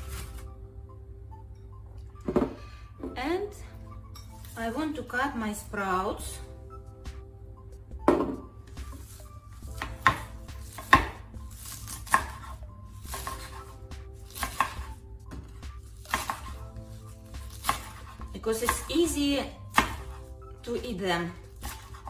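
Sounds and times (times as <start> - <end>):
knife chopping on wooden board: 8.1 - 13.7, 14.3 - 16.6, 17.3 - 18.9, 19.7 - 20.3, 21.6 - 22.0.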